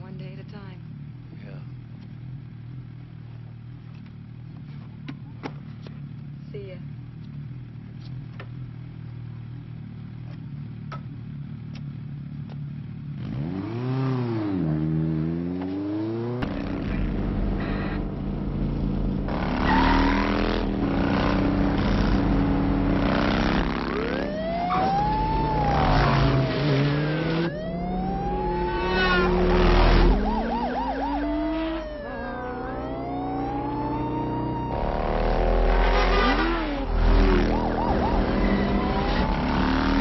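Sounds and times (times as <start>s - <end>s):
motorcycle engine revving: 6.8s - 40.0s
motorcycles riding by: 16.4s - 40.0s
siren wailing: 19.3s - 40.0s.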